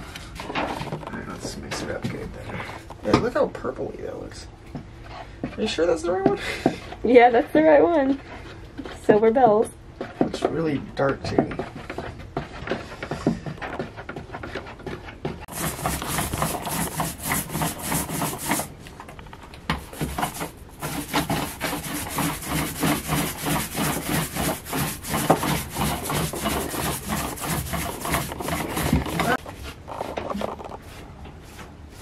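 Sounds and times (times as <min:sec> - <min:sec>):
paintbrush strokes on wood: 0:15.5 - 0:18.7, 0:19.8 - 0:29.7.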